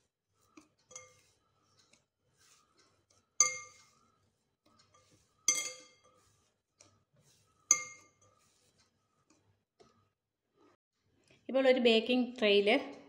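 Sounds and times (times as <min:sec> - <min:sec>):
dough kneading: 0:00.0 - 0:11.2
glass bowl clinking: 0:03.4 - 0:03.9, 0:05.5 - 0:06.1, 0:07.7 - 0:08.2.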